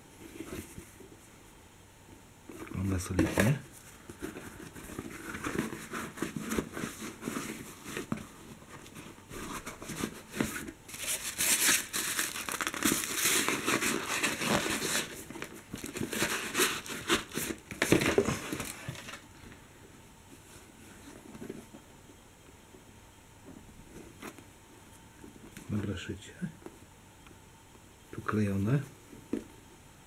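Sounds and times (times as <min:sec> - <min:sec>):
packing paper crinkling: 0:09.6 - 0:19.2.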